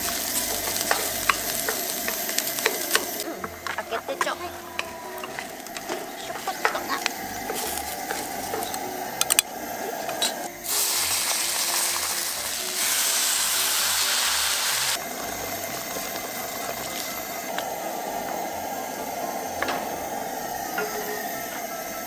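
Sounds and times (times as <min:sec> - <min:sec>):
kitchen utensils clicking and knocking: 0:00.0 - 0:10.8
water sizzling in hot pan: 0:00.0 - 0:22.0.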